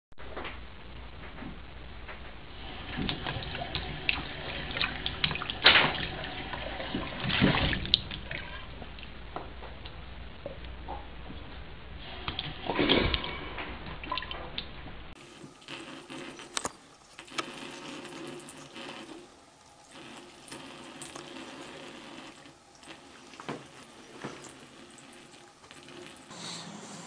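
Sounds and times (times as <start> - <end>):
tap water trickling into sink: 15.3 - 26.3.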